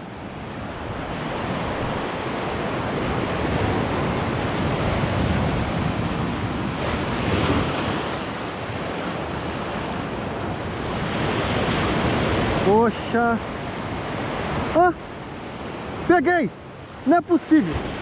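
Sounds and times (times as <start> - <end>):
wind on microphone: 0.0 - 12.7
sea surf on rocky shore: 0.0 - 18.0.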